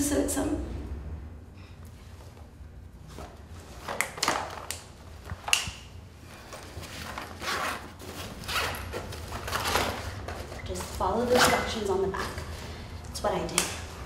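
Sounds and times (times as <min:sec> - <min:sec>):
bag rustling: 0:06.2 - 0:12.8.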